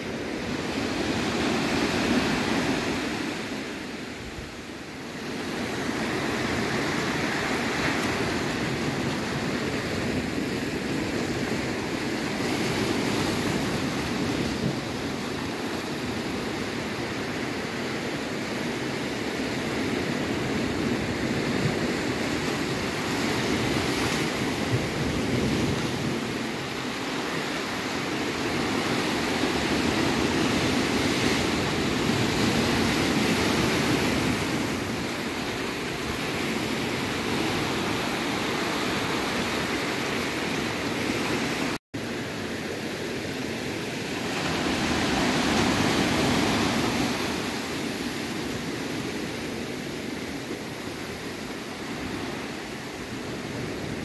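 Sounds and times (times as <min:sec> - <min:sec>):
waves breaking on rocks: 0:43.2 - 0:54.0.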